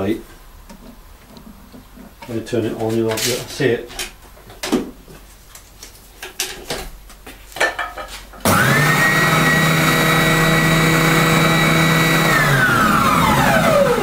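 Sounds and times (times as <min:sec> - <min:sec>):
spindle sander motor whine: 0:08.5 - 0:14.0.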